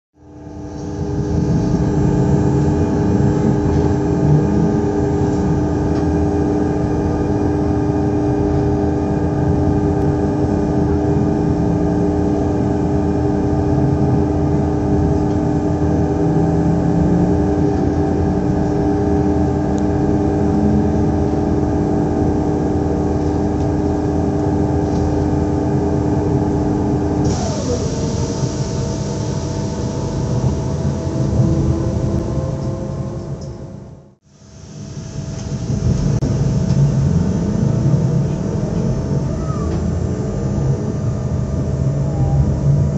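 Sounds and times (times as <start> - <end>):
train equipment humming: 0.2 - 42.9
loud hiss: 27.2 - 30.5
machine winding down: 27.2 - 33.5.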